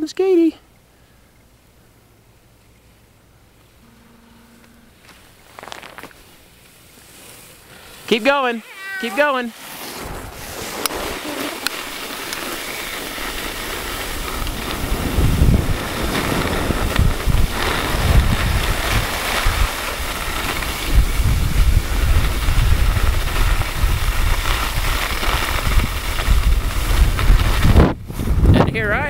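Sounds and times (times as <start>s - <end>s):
skis sliding over snow: 5.1s - 29.0s
wind buffeting microphone: 10.0s - 11.9s, 13.1s - 29.0s.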